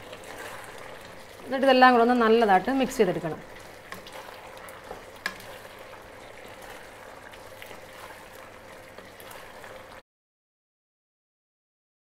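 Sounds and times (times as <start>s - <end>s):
spatula scraping: 0.0s - 1.1s, 3.8s - 7.0s
sauce sizzling in a wok: 0.0s - 10.0s.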